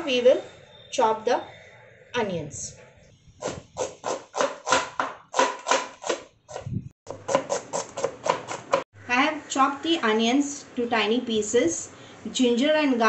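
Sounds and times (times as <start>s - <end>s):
knife chopping on plastic board: 3.4s - 8.9s.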